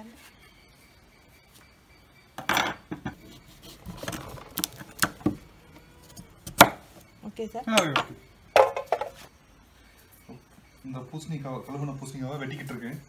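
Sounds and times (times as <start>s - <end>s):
knife chopping on wooden board: 6.4s - 6.8s.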